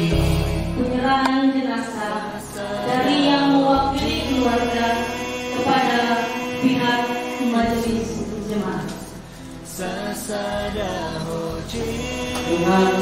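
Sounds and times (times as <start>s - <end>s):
held low bass notes: 0.0s - 1.3s
person singing a hymn: 0.0s - 13.0s.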